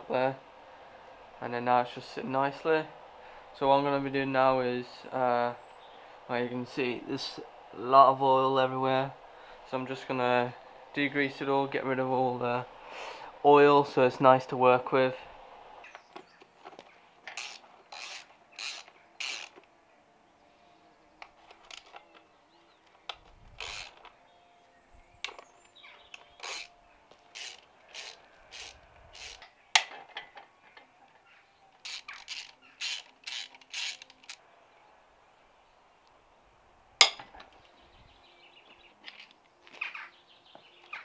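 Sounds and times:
socket ratchet clicking: 0:17.3 - 0:19.6, 0:23.1 - 0:24.0, 0:26.1 - 0:26.7, 0:27.3 - 0:29.4, 0:31.8 - 0:34.4.

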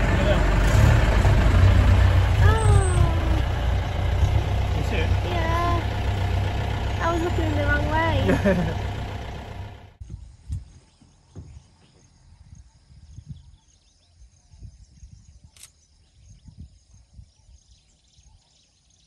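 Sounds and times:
wind gusting on microphone: 0:12.4 - 0:18.4.

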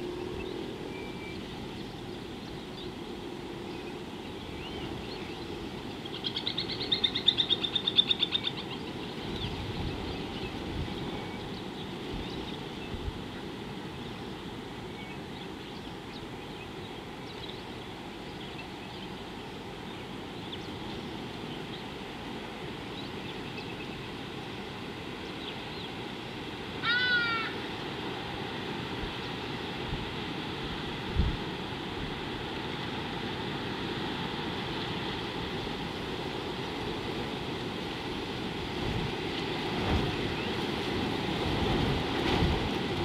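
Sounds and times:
loud animal call: 0:26.8 - 0:27.6.

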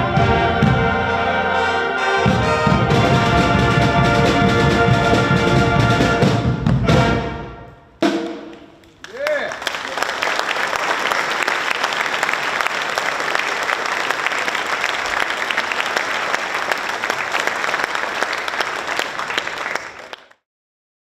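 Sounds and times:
audience applauding: 0:08.5 - 0:20.4.

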